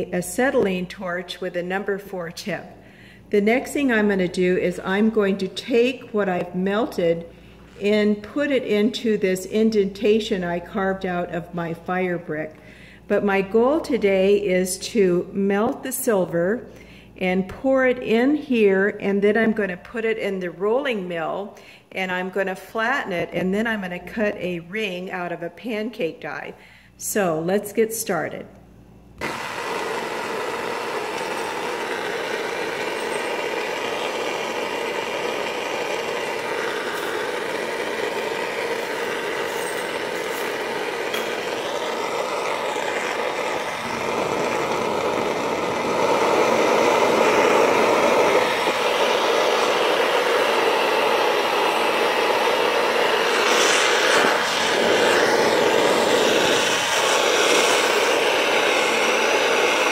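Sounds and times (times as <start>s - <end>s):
torch flame hissing: 29.2s - 59.9s.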